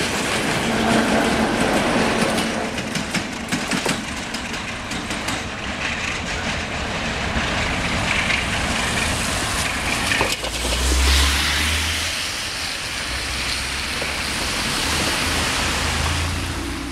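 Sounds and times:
diesel locomotive engine running: 0:00.0 - 0:11.0
rain hissing: 0:08.7 - 0:16.9.

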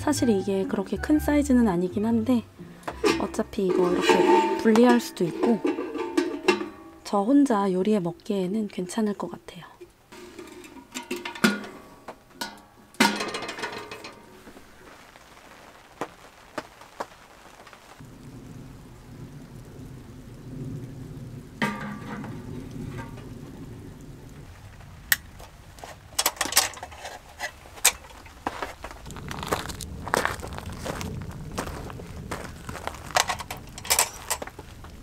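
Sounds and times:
steady rain: 0:02.0 - 0:35.0
stove door clanking shut: 0:02.9 - 0:06.9, 0:10.2 - 0:14.2, 0:21.6 - 0:23.2
clunk: 0:02.9 - 0:07.0, 0:10.2 - 0:14.3, 0:21.6 - 0:23.3.

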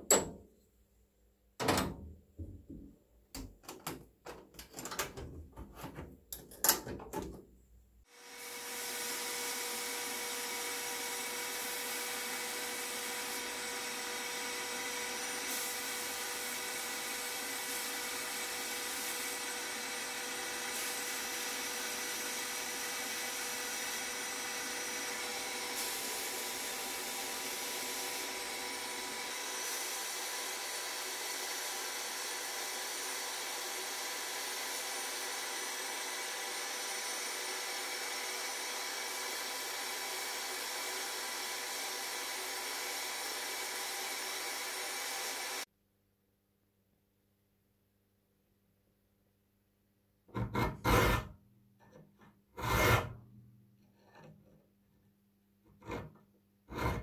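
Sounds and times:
cabinet door and latches clacking: 0:00.0 - 0:00.4, 0:01.6 - 0:07.4.

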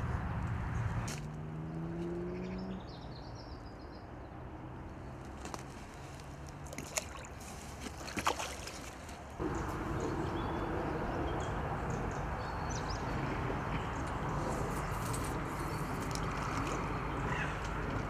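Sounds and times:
fish splashing in water: 0:06.6 - 0:09.2.

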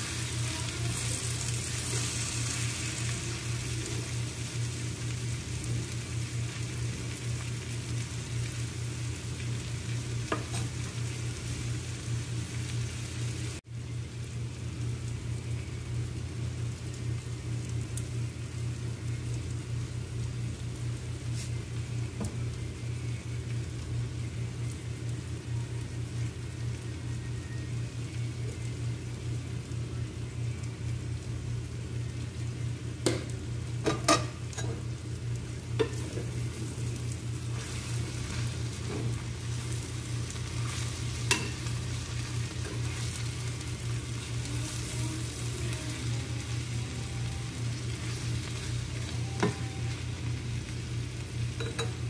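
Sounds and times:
food sizzling in a frying pan: 0:00.0 - 0:52.0
steady low hum: 0:00.0 - 0:52.0.

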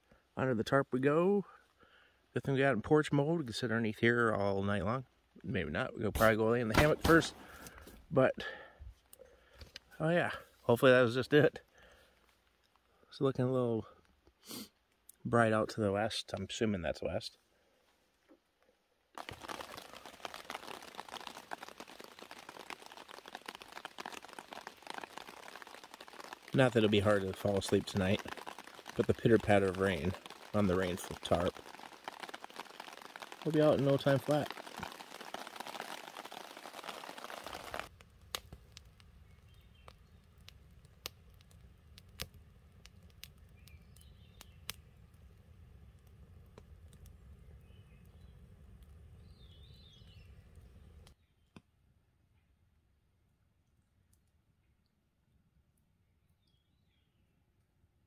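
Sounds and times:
rain pattering on tarp: 0:06.2 - 0:08.7, 0:19.2 - 0:45.4.

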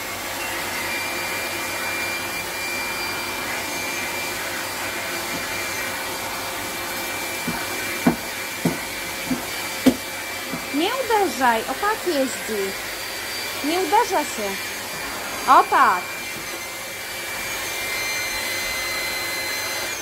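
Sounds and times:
vacuum cleaner running: 0:00.0 - 0:20.0
vacuum nozzle knocking floor: 0:07.4 - 0:10.8.

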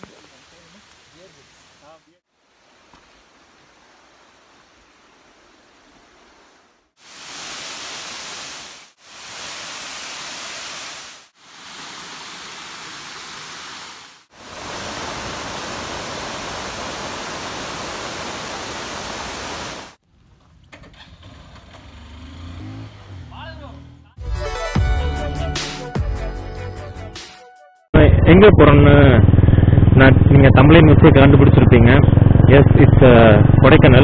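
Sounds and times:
faint hiss: 0:00.0 - 0:20.0
waterfall rushing: 0:07.0 - 0:20.0.

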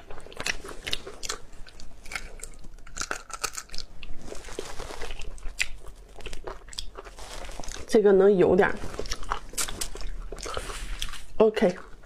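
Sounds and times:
chewing and crunching: 0:00.0 - 0:08.0, 0:08.6 - 0:12.0.

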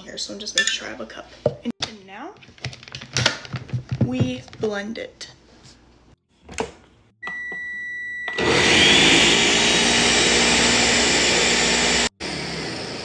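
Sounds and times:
button beep: 0:07.2 - 0:08.4
blender motor whine: 0:07.3 - 0:13.0.

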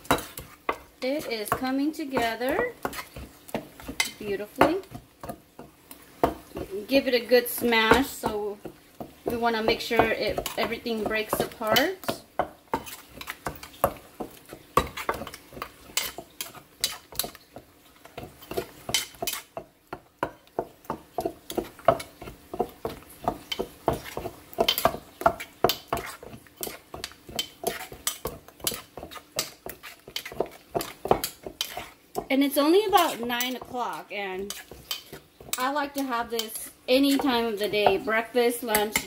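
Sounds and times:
spoon scraping and clinking: 0:34.5 - 0:35.6.

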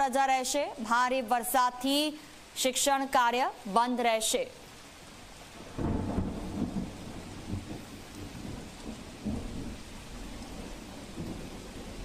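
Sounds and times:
steady rain: 0:00.0 - 0:12.0
thunder rolling: 0:05.6 - 0:12.0.

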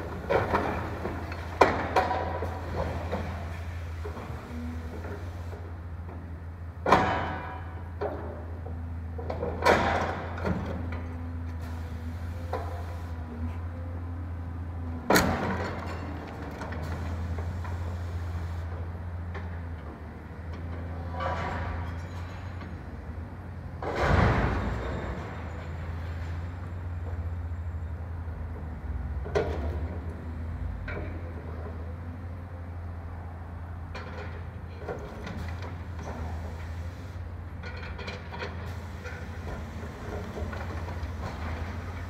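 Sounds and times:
excavator engine drone: 0:00.0 - 0:42.0
demolition crashes: 0:23.8 - 0:26.4.

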